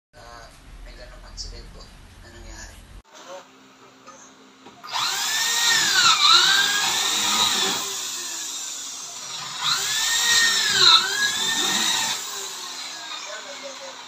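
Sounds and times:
electric drill running: 0:04.8 - 0:14.0.

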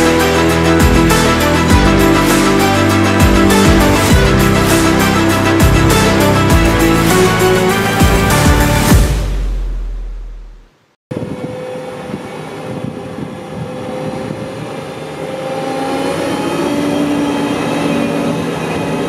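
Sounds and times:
background music: 0:00.0 - 0:10.6
mower engine with whine: 0:11.1 - 0:19.0.

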